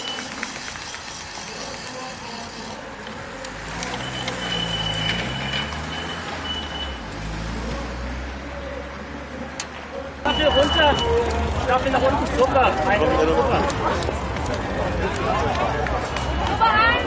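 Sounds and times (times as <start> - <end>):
car driving past slowly: 3.5 - 9.4.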